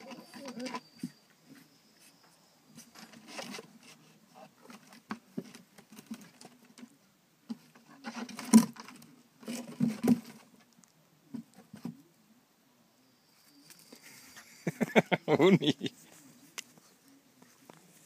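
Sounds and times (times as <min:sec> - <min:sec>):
knocks and scuffling: 0:00.0 - 0:12.0.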